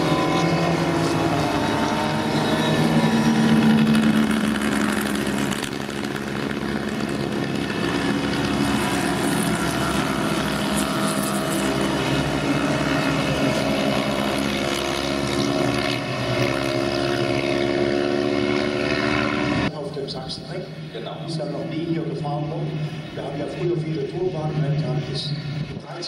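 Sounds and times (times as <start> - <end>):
small racing car engines revving: 0.0 - 19.7.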